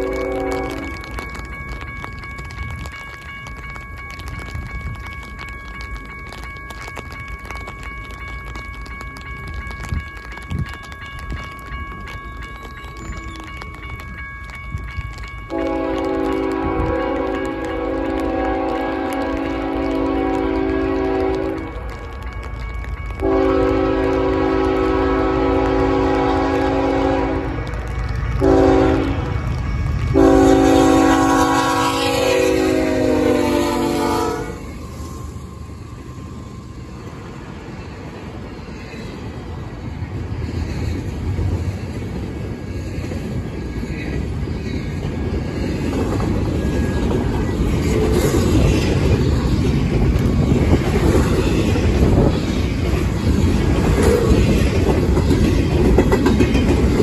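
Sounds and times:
locomotive horn blasts: 0.0 - 1.0, 15.5 - 21.8, 23.2 - 27.6, 28.4 - 29.3, 30.2 - 34.6
train wheels rumbling and clacking: 0.0 - 57.0.

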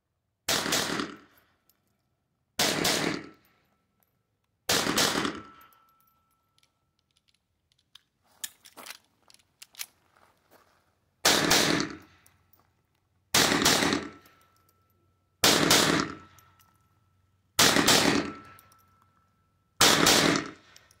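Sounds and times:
pistol shots: 0.5 - 1.2, 2.6 - 3.4, 4.7 - 5.5, 11.2 - 12.1, 13.3 - 14.2, 15.4 - 16.3, 17.6 - 18.6, 19.8 - 20.6.

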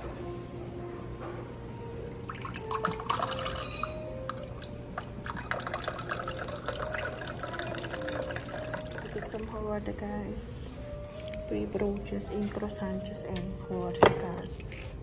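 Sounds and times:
liquid pouring and dripping: 2.0 - 9.7.

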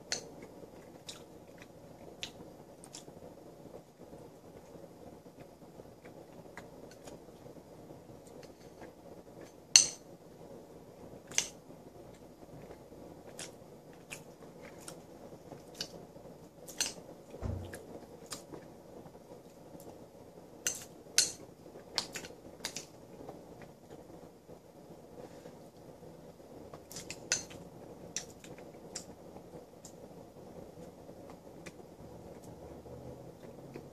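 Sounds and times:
dull low thump: 17.4 - 17.9.

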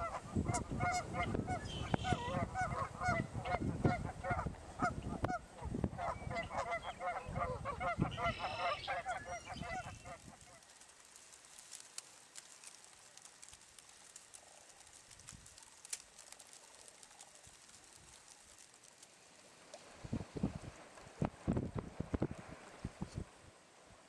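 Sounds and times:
cranes calling: 6.0 - 10.6.

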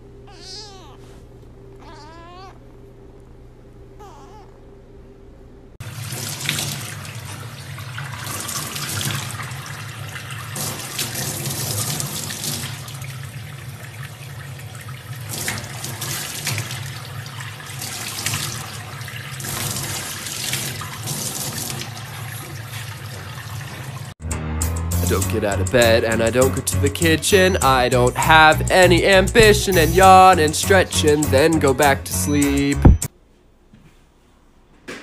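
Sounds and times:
tap water running into sink: 5.8 - 24.0.

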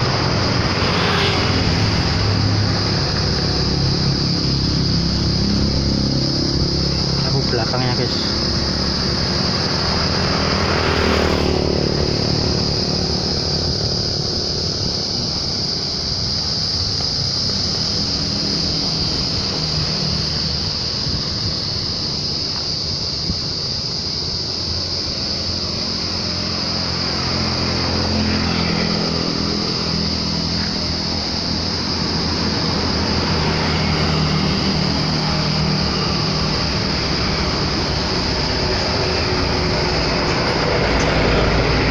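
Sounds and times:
diesel truck engine idling: 2.0 - 10.4, 29.1 - 41.9.

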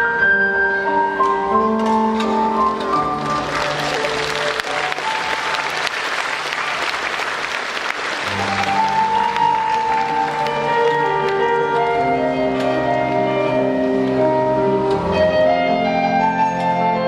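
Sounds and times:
circus music: 0.0 - 17.0
audience clapping: 2.9 - 12.0.

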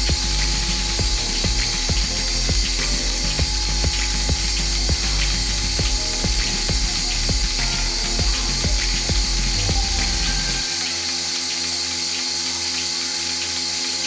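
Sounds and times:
low machine hum: 0.0 - 11.9.

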